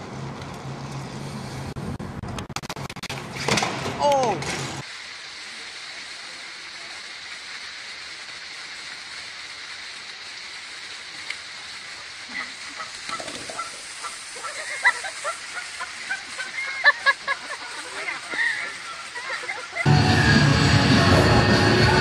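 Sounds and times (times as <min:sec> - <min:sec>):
steady background hiss: 0:03.2 - 0:19.9
goose honking: 0:12.4 - 0:14.8.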